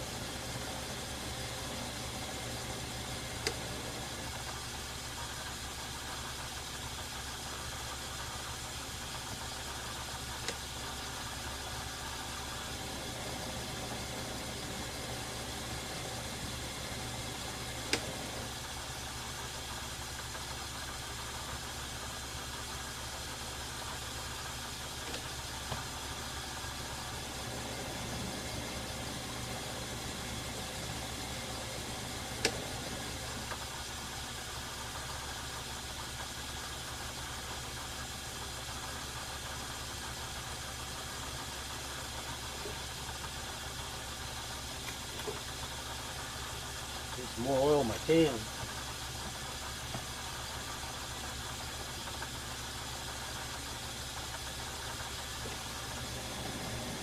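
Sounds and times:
metal lathe motor and gear hum: 0:00.0 - 0:05.1, 0:10.2 - 0:20.4, 0:24.5 - 0:34.4, 0:44.1 - 0:52.5, 0:53.3 - 0:57.0.

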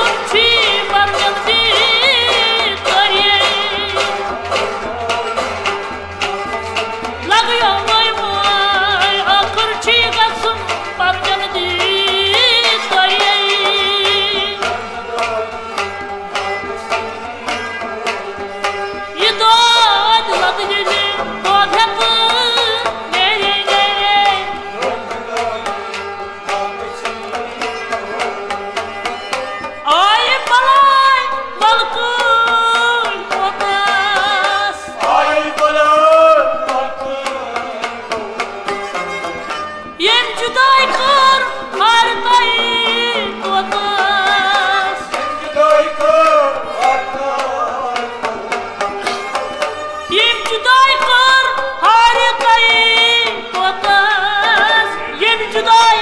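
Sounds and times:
bowed sarangi: 0:00.0 - 0:56.0
clay-pot drum struck in rhythm: 0:00.0 - 0:56.0
harmonium: 0:00.0 - 0:56.0
man singing ornamented phrases: 0:35.0 - 0:38.6.

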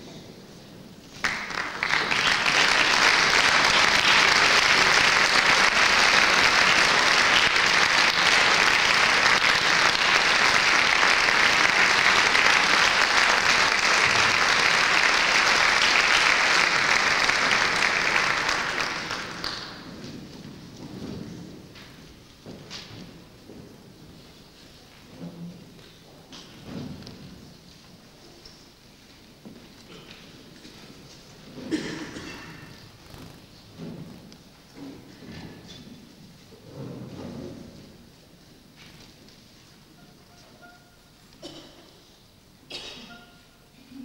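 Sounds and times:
audience applauding: 0:01.1 - 0:20.1.

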